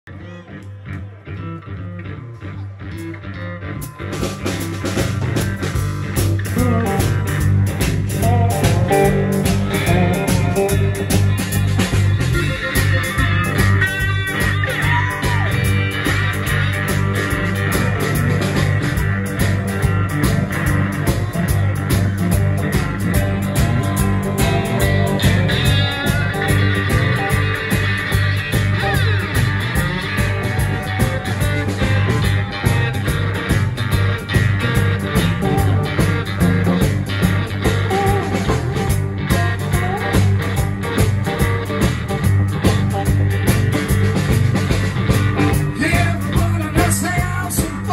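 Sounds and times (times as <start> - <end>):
bass guitar: 0.0 - 47.9
electric guitars: 0.1 - 47.9
drum kit beat: 3.8 - 47.9.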